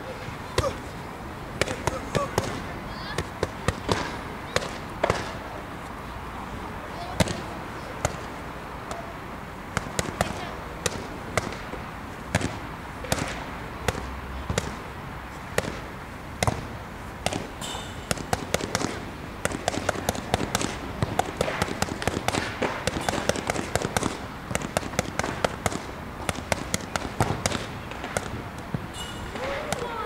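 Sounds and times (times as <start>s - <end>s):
boxing gloves slapping mitts: 0.5s - 0.9s, 1.6s - 5.5s, 7.2s - 9.1s, 9.7s - 14.9s, 15.5s - 30.0s.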